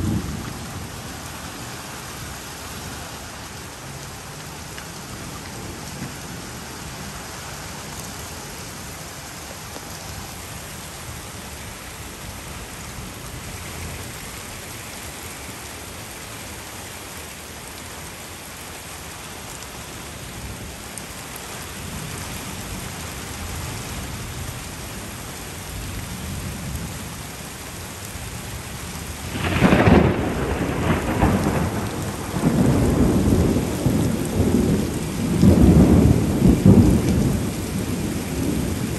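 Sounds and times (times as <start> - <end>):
heavy rain hissing: 0.0 - 38.9
loud thunderclap: 29.3 - 38.6
low thunder rumbling: 29.3 - 38.9.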